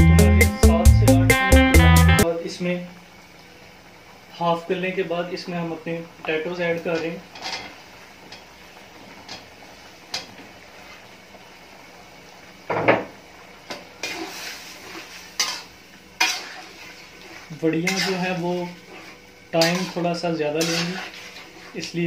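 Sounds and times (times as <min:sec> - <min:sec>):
potatoes sliding into a pot: 0:13.9 - 0:22.0
metal spatula scraping a pot: 0:14.0 - 0:21.9.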